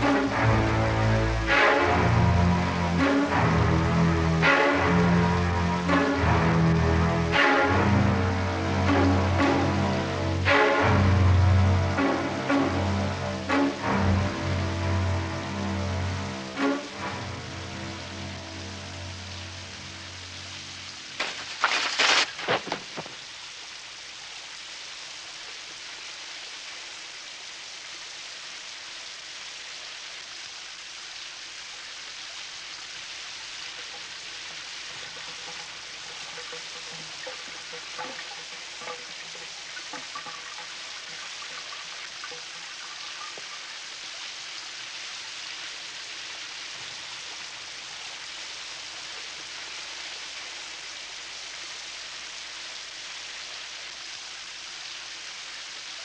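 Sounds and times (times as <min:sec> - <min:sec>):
water running down drain: 0:00.0 - 0:27.3, 0:30.2 - 0:56.0
shower spraying onto tub: 0:16.2 - 0:24.0, 0:32.4 - 0:52.3.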